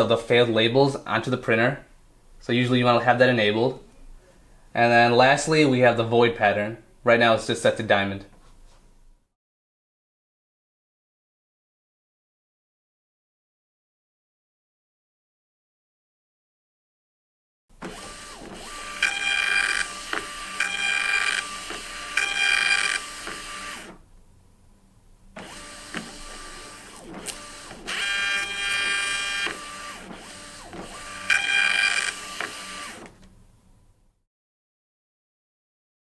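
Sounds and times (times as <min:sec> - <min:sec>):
label printer motor whining: 0:17.8 - 0:24.0, 0:25.4 - 0:33.2
printer clicks: 0:25.4 - 0:33.2.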